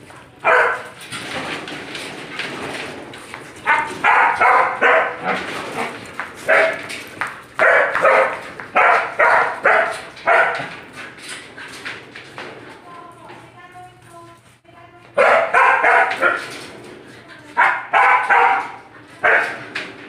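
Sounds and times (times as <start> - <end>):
dog barking: 0.4 - 1.0, 3.6 - 5.4, 6.4 - 6.9, 7.6 - 10.8, 15.2 - 16.6, 17.6 - 19.7.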